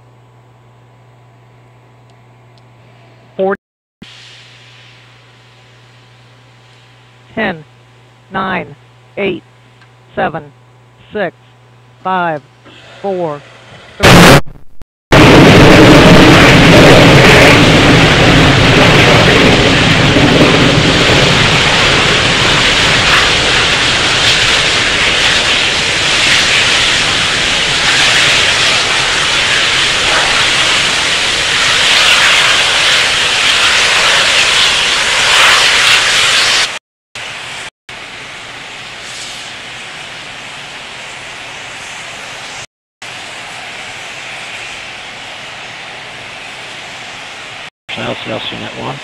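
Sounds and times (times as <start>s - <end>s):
rocket engine roaring: 13.4s - 36.8s, 47.9s - 49.0s.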